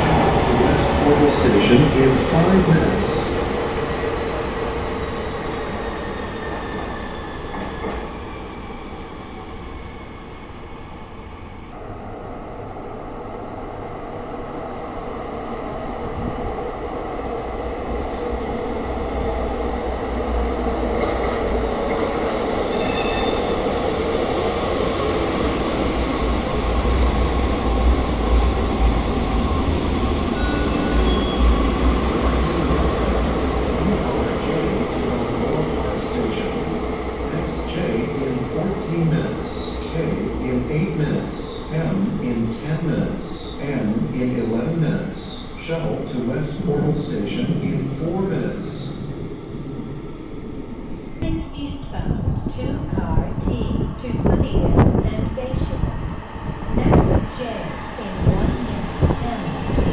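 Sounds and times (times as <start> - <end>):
train rumbling: 0.0 - 59.9
train wheels squealing: 22.7 - 23.5, 30.3 - 31.6.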